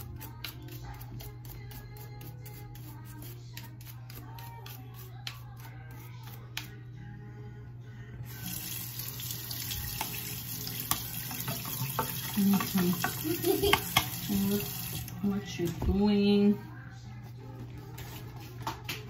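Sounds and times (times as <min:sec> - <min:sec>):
faint background music: 0:00.0 - 0:19.0
tap water running into sink: 0:08.4 - 0:15.2.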